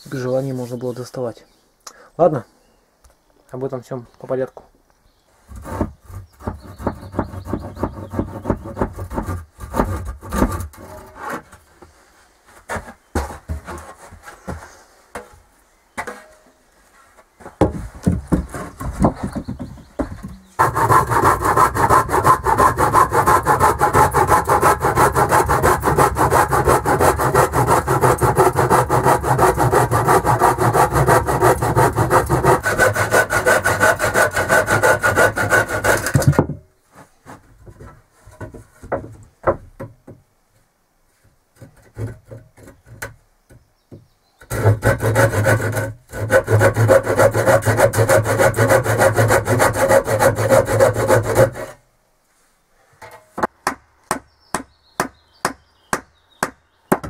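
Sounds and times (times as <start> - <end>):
hand saw cutting wood: 5.5 - 11.6, 20.5 - 36.4, 44.5 - 51.8.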